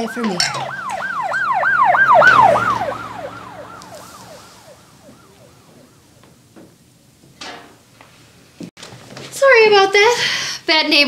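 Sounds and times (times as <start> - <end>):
emergency siren yelping: 0.0 - 7.1.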